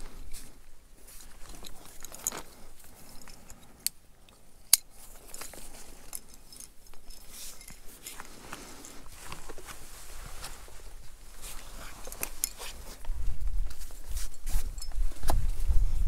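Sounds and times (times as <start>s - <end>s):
rope and clothing rustling: 0.0s - 3.8s, 4.8s - 16.0s
carabiners clinking: 1.1s - 9.4s, 11.8s - 13.0s.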